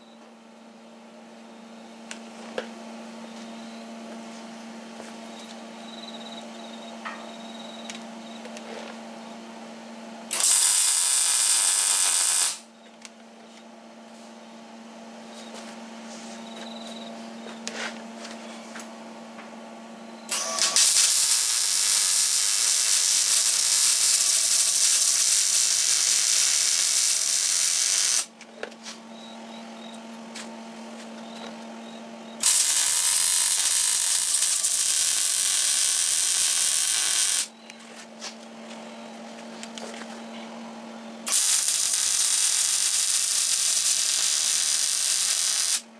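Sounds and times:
electric arc welding crackling: 10.3s - 12.7s, 20.3s - 28.3s, 32.4s - 37.5s, 41.3s - 45.9s.

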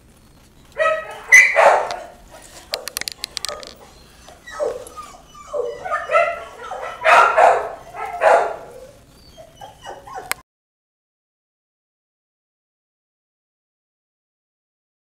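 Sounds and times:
puppy calling: 0.3s - 10.4s.

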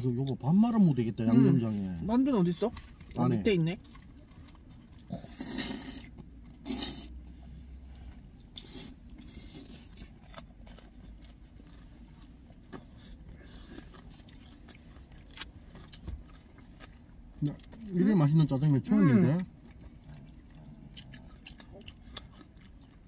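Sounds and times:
soft chewing: 0.1s - 23.0s
noodle slurps: 4.9s - 7.2s.

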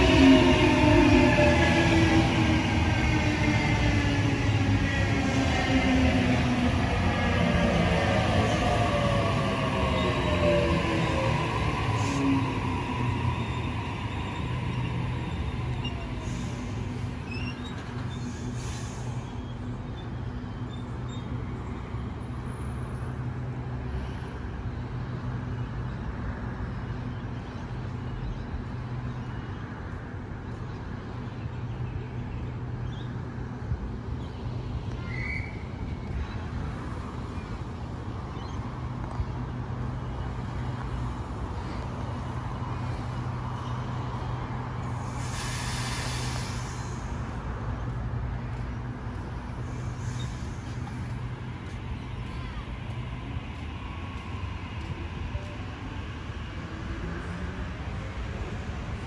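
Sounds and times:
electric train humming: 0.0s - 18.0s
hiss of released air: 18.3s - 19.2s, 45.0s - 47.2s.

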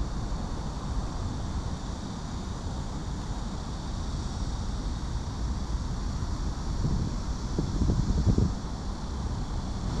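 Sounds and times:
wind buffeting microphone: 6.7s - 8.8s.

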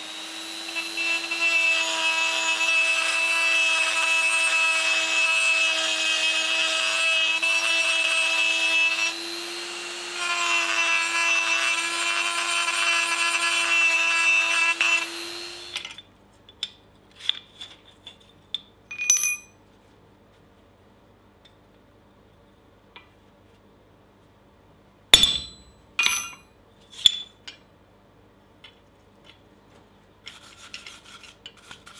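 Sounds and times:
rotary tool grinding steel: 0.0s - 15.9s
ringing metal clink: 18.9s - 19.6s, 25.2s - 27.3s.

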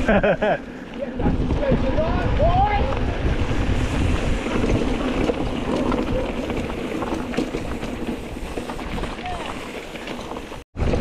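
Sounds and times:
tyres rumbling on dirt: 0.0s - 11.0s
bike clicks and rattles: 0.1s - 11.0s
wind buffeting microphone: 1.0s - 9.7s.

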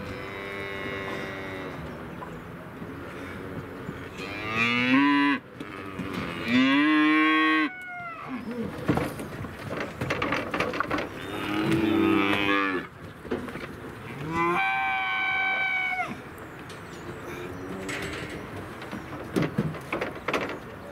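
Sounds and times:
young cattle mooing: 0.0s - 2.0s, 4.1s - 8.7s, 11.2s - 12.9s, 14.1s - 16.2s
clatter of knocks: 8.8s - 11.9s, 17.8s - 20.9s.

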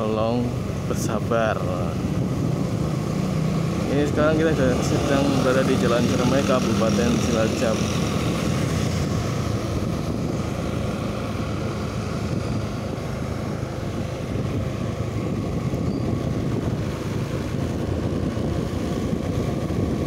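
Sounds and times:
motorcycle engine cruising: 0.0s - 20.0s
wind on microphone: 1.7s - 4.3s, 7.9s - 20.0s.

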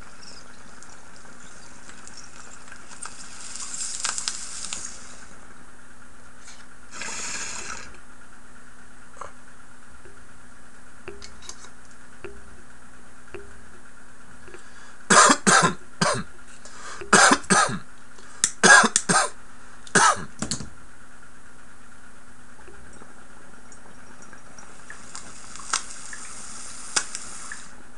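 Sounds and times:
man coughing hard: 15.1s - 16.3s, 17.1s - 17.8s, 18.6s - 20.3s.

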